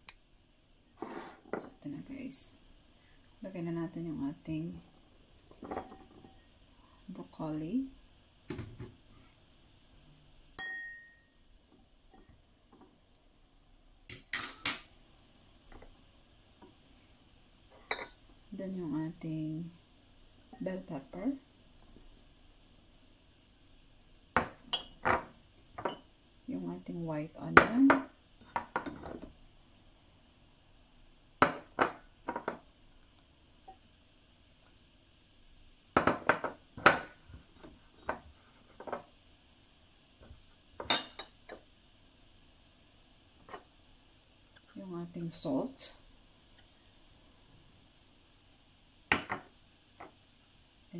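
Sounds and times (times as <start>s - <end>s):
fork clinking against glass bowl: 10.6s - 11.3s.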